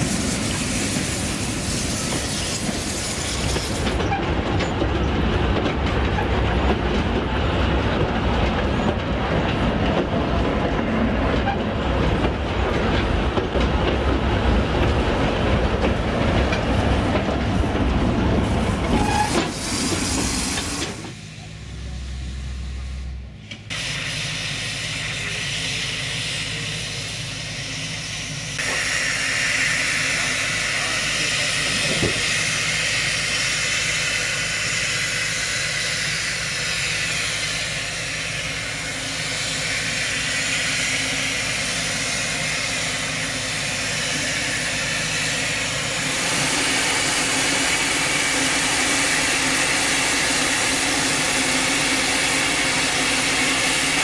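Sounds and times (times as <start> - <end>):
steam hissing from a locomotive: 0.0 - 4.2, 18.7 - 23.1, 23.7 - 54.0.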